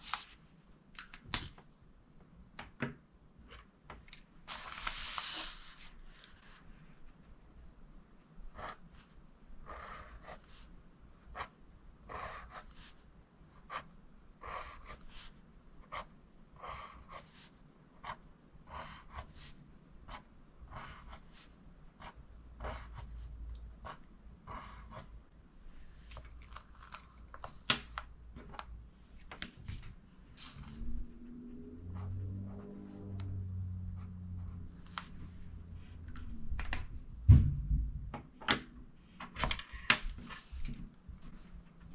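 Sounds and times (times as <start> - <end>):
pencil writing on paper: 9.6 - 10.6, 12.1 - 12.9, 13.6 - 21.4, 22.0 - 23.1, 23.8 - 25.1.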